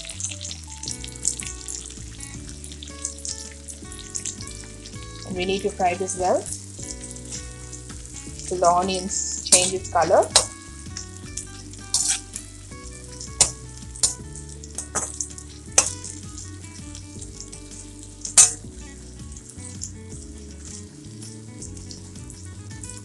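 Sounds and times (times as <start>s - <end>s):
onions sizzling in oil: 0.0s - 23.0s
spatula scraping against pan: 5.9s - 14.2s.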